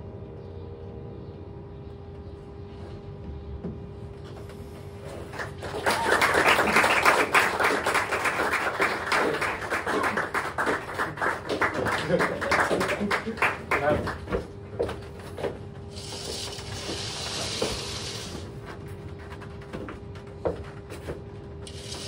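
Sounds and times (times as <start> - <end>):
audience applause: 5.3 - 14.4.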